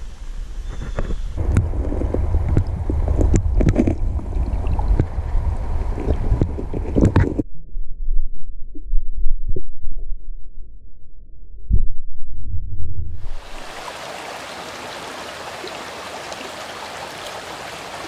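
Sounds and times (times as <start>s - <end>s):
muffled underwater rumble: 0.1s - 13.7s
dull underwater thumps: 0.9s - 7.4s
water sloshing and splashing: 1.4s - 7.4s.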